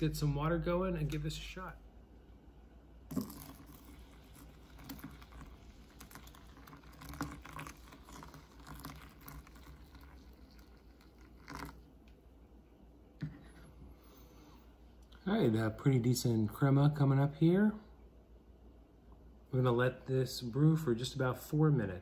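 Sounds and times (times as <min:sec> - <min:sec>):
water trickling onto coffee: 0:03.1 - 0:12.0.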